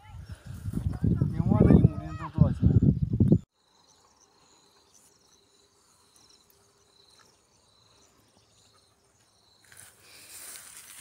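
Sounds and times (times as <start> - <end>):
faint crickets trilling: 3.5 - 11.0.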